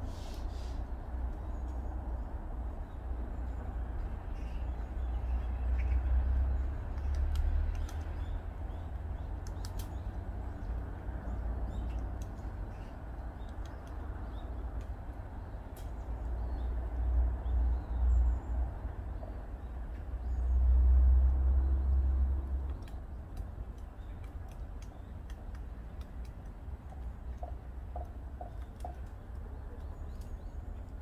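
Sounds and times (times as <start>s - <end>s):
woodpecker tapping on tree: 6.4s - 15.2s, 22.0s - 31.0s.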